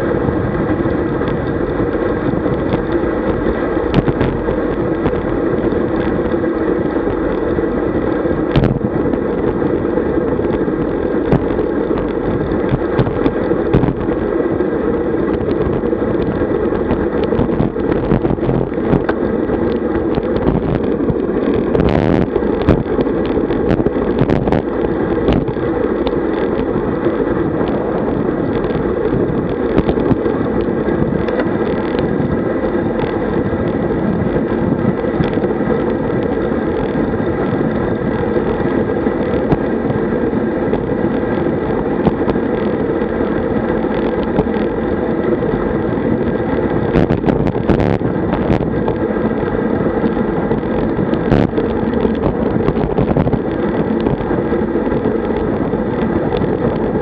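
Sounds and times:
bike tyre noise on road: 0:00.0 - 0:57.0
wind rushing over microphone: 0:00.0 - 0:57.0
sharp clicks and knocks: 0:01.2 - 0:06.2, 0:08.5 - 0:08.9.

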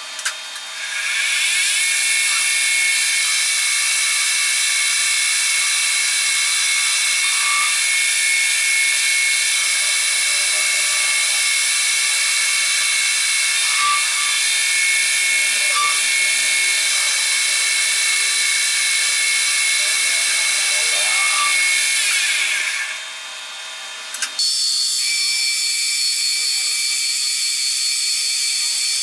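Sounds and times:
metal lathe whining: 0:00.7 - 0:23.2.

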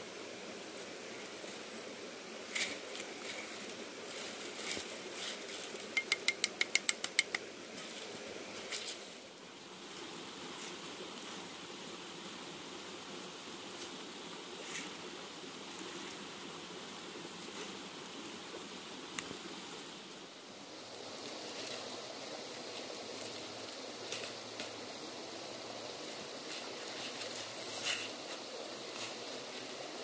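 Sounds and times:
sharp clicks and knocks: 0:06.0 - 0:07.5.

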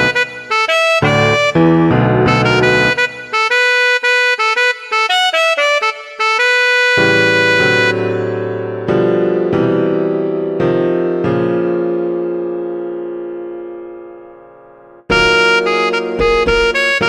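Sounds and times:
piano chords: 0:00.0 - 0:03.5, 0:06.9 - 0:17.0.

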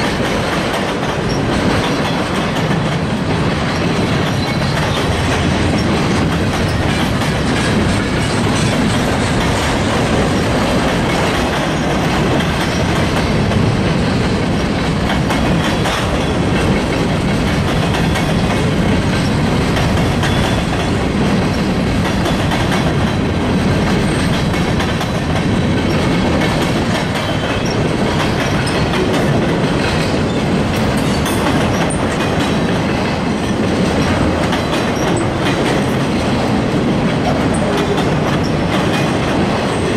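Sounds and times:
freight train cars rolling past: 0:00.0 - 0:39.9.

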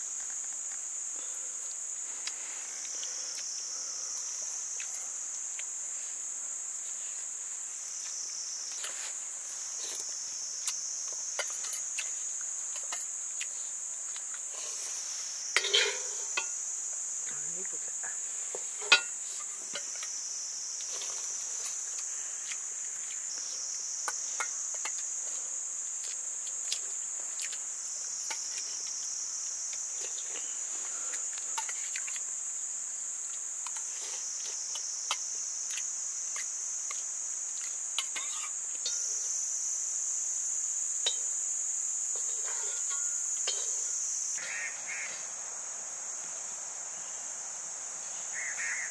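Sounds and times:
high-pitched insect chorus: 0:00.0 - 0:48.9
kitchenware clatter: 0:15.6 - 0:16.5.

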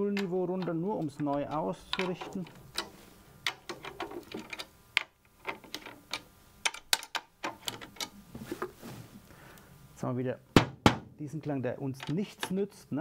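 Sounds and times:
drum key metallic clicks: 0:00.1 - 0:08.1.

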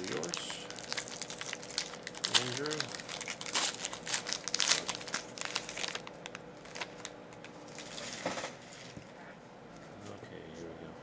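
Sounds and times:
plastic wrapper crinkling and tearing: 0:00.0 - 0:08.3.

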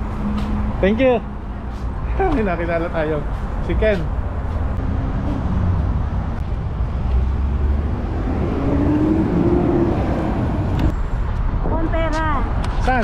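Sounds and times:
low rumble of cars: 0:00.0 - 0:13.0
vehicle engine rising and falling: 0:04.2 - 0:11.1.

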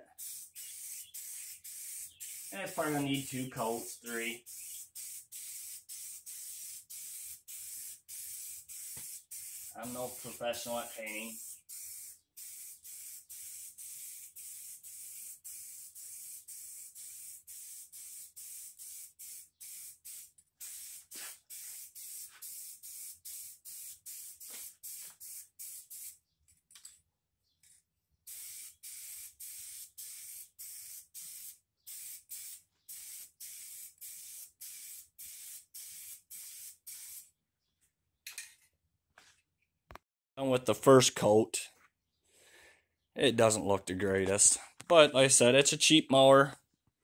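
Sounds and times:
spray paint can hissing: 0:00.1 - 0:26.2, 0:28.2 - 0:37.3.

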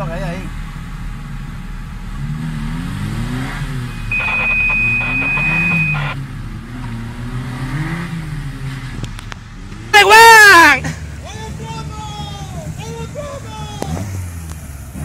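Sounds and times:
engine revving: 0:00.0 - 0:15.0
high-pitched tone: 0:03.7 - 0:06.2.

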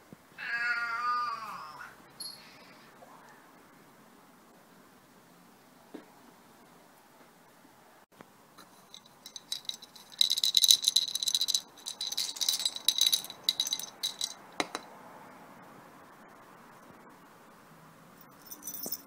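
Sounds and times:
cat collar bell jingling: 0:08.8 - 0:14.5, 0:18.2 - 0:19.0.

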